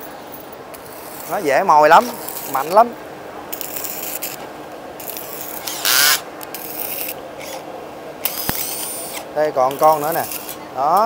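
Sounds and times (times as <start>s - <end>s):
screwdriver scraping metal casing: 8.2s - 10.6s.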